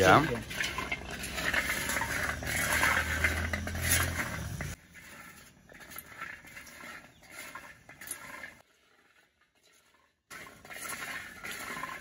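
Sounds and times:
nuts crackling: 0.0 - 5.7
stick scraping nuts in pan: 0.0 - 9.1.

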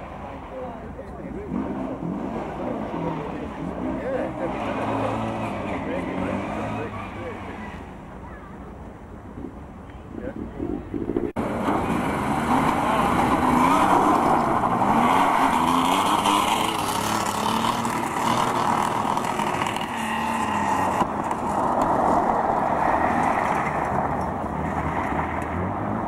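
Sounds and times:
car engine revving: 1.3 - 7.9, 10.8 - 26.0.

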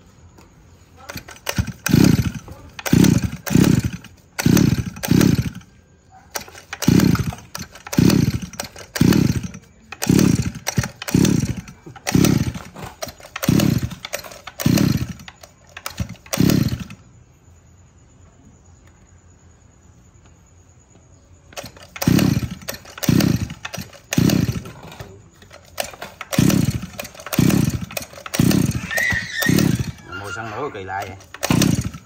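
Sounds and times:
brush-cutter engine pull-starting: 0.8 - 17.0, 21.5 - 32.0.

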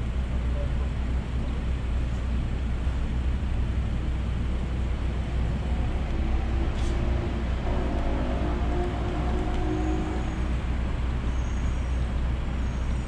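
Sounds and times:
minivan engine idling: 0.0 - 5.6
city traffic: 0.0 - 13.0.

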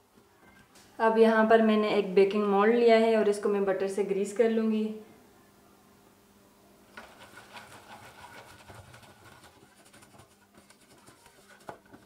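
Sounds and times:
pastry brush strokes in metal tin: 7.0 - 12.0.

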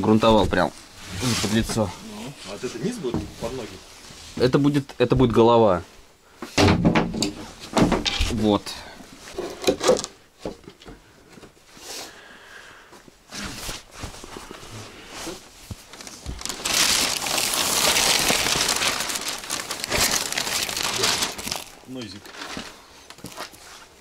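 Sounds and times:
plastic bag rustling: 0.0 - 4.6, 13.4 - 24.0.

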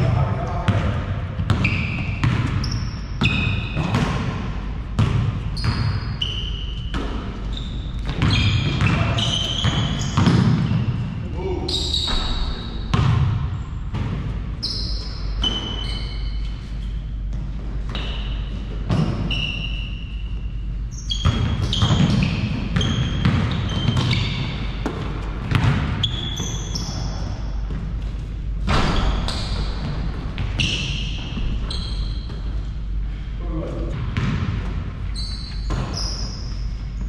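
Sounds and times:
steady low hum: 0.0 - 37.0
sneaker squeaks: 0.2 - 13.2, 14.0 - 37.0
basketball bouncing on floor: 0.6 - 6.0, 6.9 - 10.9, 12.0 - 14.3, 17.3 - 19.3, 21.1 - 27.9, 34.0 - 34.9, 35.6 - 37.0.

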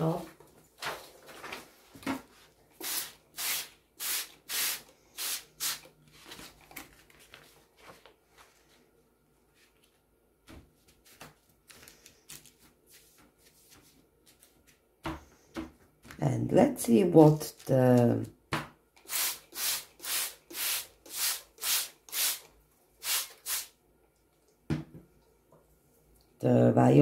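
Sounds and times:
paper rustling and rubbing: 0.6 - 2.6, 5.8 - 8.8, 10.8 - 14.8
spray bottle spritzing: 2.8 - 5.9, 19.0 - 23.7.

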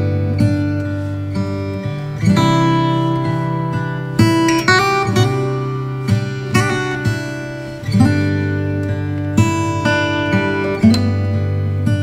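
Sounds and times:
acoustic guitar strumming chords: 0.0 - 12.0.

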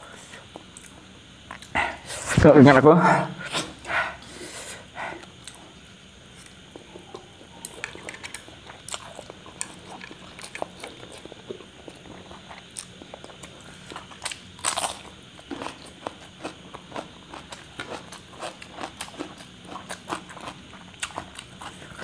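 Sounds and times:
crunchy cucumber bite: 7.7 - 22.0.

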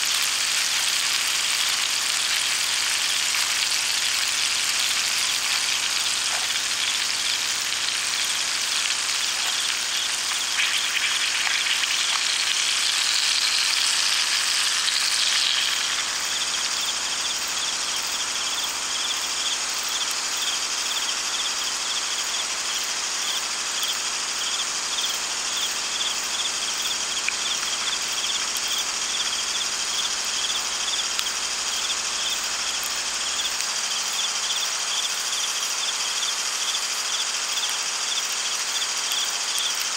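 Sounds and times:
dense high hiss: 0.0 - 39.8
insects chirping: 0.1 - 39.9.

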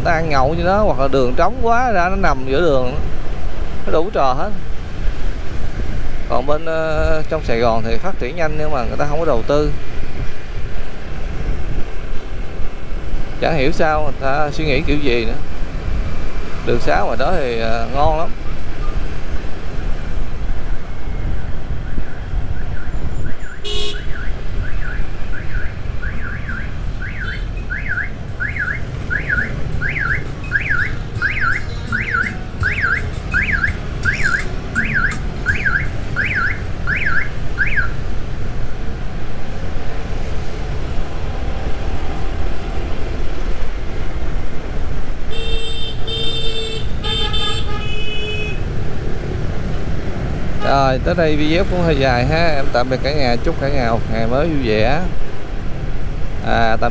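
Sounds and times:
street traffic: 0.0 - 56.9
electronic siren sweeping: 21.9 - 38.0
vehicle horn honking: 23.6 - 24.2, 45.3 - 48.6.

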